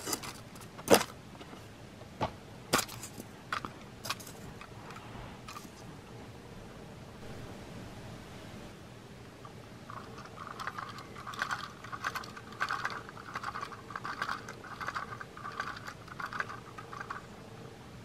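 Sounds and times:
toy freight car rattling: 9.9s - 17.2s.

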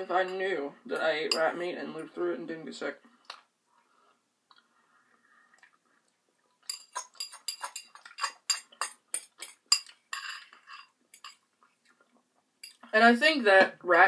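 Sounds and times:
fork clinking on ceramic bowl: 6.6s - 11.4s.

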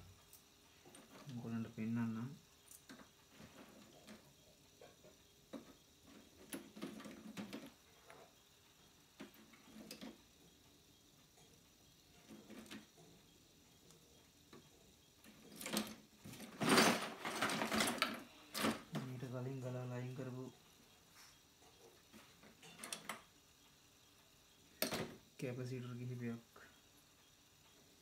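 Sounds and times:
rustling: 15.3s - 19.1s.

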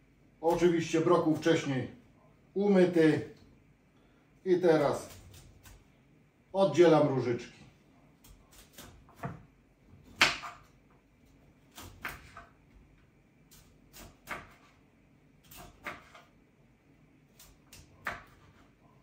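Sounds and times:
knife cutting on cutting board: 13.5s - 14.8s, 15.4s - 16.3s, 17.3s - 18.8s.

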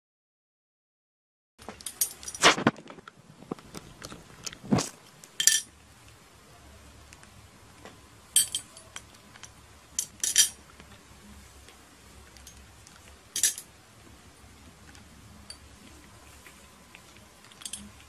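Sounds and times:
glass ornament clinking: 8.4s - 8.9s.

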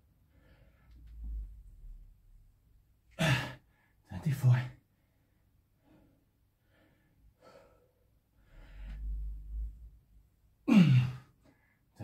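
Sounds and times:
man breathing hard: 5.8s - 9.2s
man groaning exhale: 10.7s - 11.2s.

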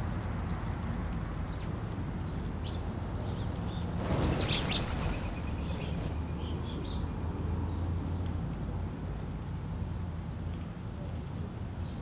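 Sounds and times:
small birds chirping: 1.4s - 7.8s
wings fluttering: 3.9s - 6.3s.

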